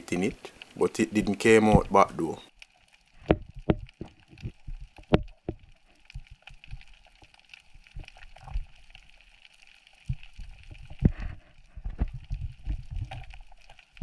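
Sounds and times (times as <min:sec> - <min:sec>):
low underwater thumps: 0:03.2 - 0:06.8, 0:10.0 - 0:13.5
underwater gurgling and bubbling: 0:03.2 - 0:14.0.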